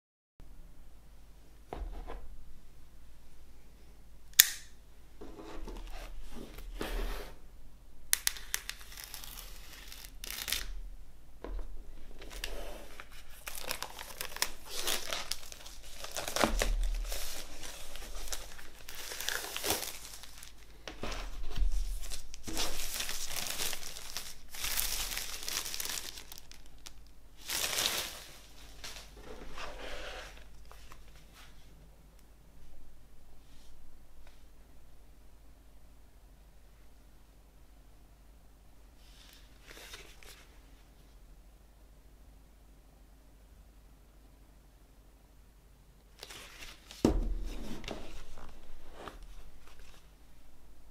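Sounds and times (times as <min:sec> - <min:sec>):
plastic wrap crinkling and tearing: 0:08.1 - 0:10.8, 0:12.1 - 0:31.2, 0:46.2 - 0:50.1.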